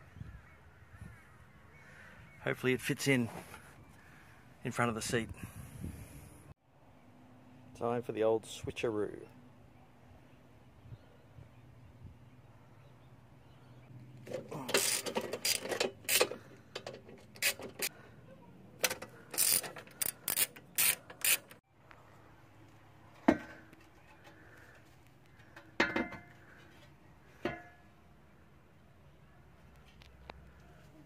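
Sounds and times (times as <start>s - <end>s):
metal seat rails clicking: 14.2s - 17.9s, 18.8s - 21.6s.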